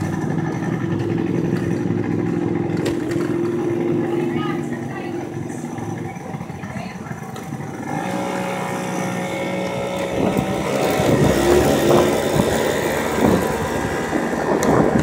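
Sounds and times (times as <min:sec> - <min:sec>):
motor scooter engine: 0:00.0 - 0:15.0
wind on microphone: 0:09.6 - 0:15.0.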